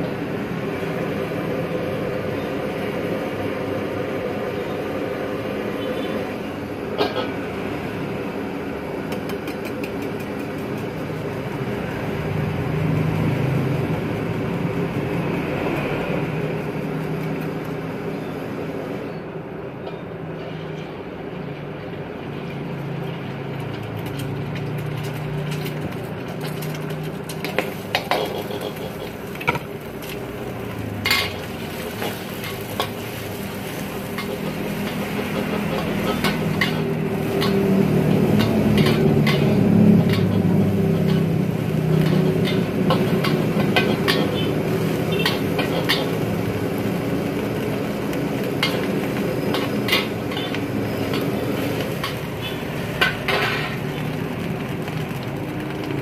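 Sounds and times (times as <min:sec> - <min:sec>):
ladle scraping and clanking on wok: 0:22.3 - 0:54.4
egg sizzling in hot oil: 0:23.0 - 0:56.0.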